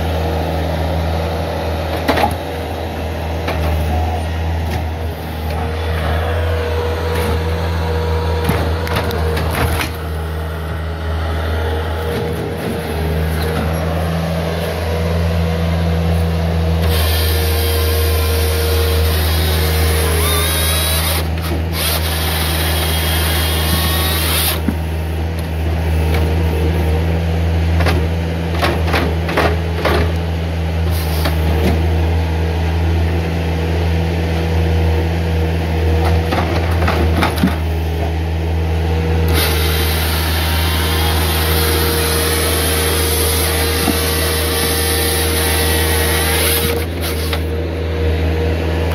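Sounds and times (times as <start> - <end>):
diesel engine running: 0.0 - 48.9
hydraulic chain saw cutting logs: 11.8 - 27.1, 39.0 - 47.8.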